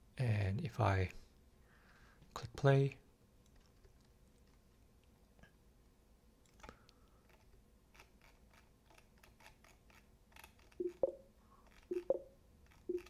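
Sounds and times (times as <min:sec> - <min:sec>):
faint rapid clicks: 0:03.4 - 0:05.5, 0:06.4 - 0:13.0.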